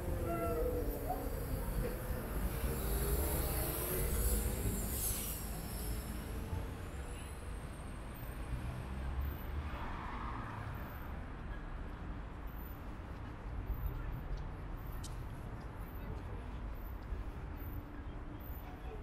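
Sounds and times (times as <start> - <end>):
indistinct voices: 0.0 - 5.2
low rumble of traffic: 0.0 - 19.0.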